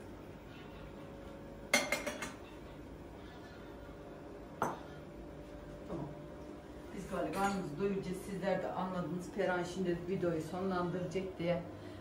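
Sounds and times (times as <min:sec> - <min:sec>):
teapot knock: 0:04.6 - 0:04.8.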